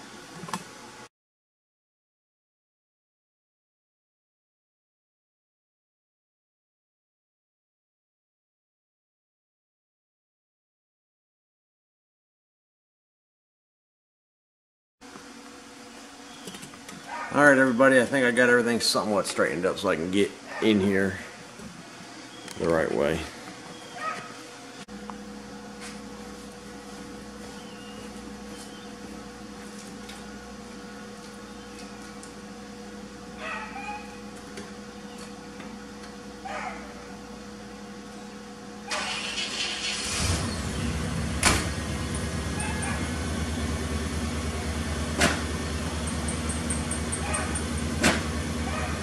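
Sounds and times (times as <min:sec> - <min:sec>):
steady low hum: 0:15.0 - 0:49.0
engine idling: 0:38.9 - 0:49.0.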